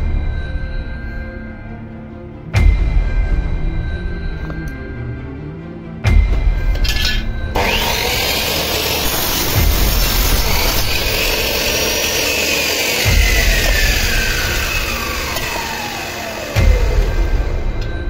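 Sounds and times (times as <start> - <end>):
miter saw cutting metal: 6.8 - 18.0
saw blade winding down: 6.8 - 18.0.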